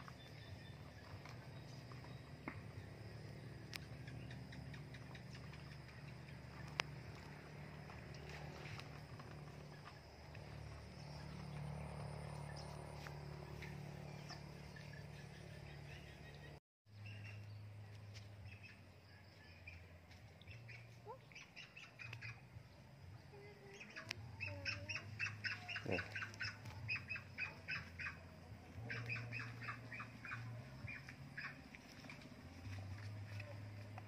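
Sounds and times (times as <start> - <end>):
bird squawking: 23.8 - 28.2.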